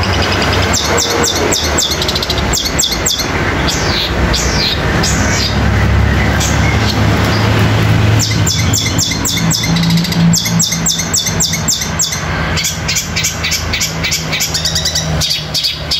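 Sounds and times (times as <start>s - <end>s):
bird singing sharp chirps: 8.2s - 15.9s.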